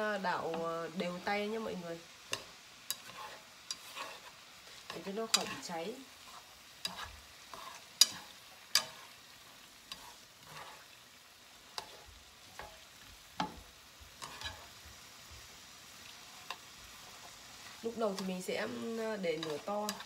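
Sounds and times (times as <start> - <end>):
syrup sizzling: 0.0 - 20.0
chopsticks clicking against pan: 6.8 - 9.0, 19.4 - 20.0.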